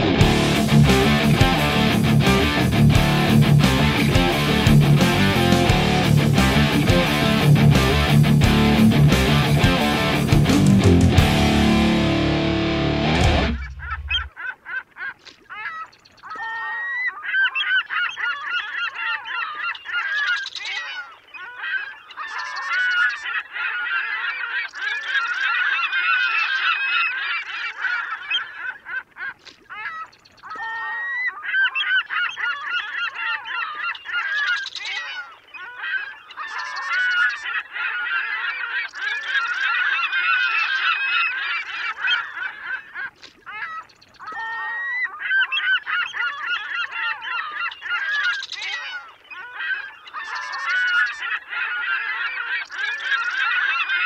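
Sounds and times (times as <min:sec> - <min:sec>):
flock of birds calling: 0:13.3 - 0:54.0.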